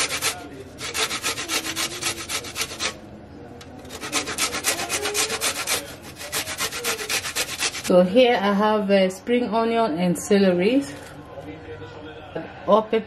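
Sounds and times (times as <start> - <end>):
garlic rasping on metal grater: 0.0 - 3.0, 3.8 - 7.9.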